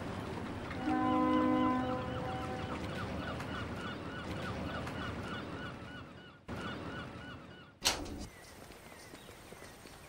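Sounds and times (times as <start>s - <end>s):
water birds calling: 0.0s - 10.0s.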